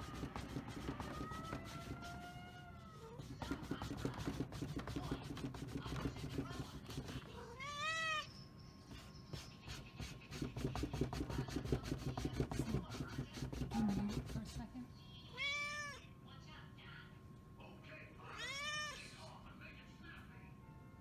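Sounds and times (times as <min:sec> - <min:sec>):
cat meowing: 0:01.2 - 0:03.2, 0:07.4 - 0:08.3, 0:15.3 - 0:16.0, 0:18.2 - 0:19.1
cat chewing cardboard box: 0:03.2 - 0:07.4, 0:09.4 - 0:14.0.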